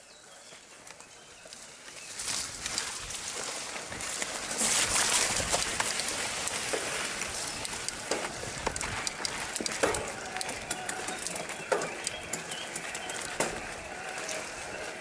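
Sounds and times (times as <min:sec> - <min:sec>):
bike tyres rushing over wet ground: 0:00.2 - 0:15.0
bike chain and frame rattling: 0:04.0 - 0:14.8.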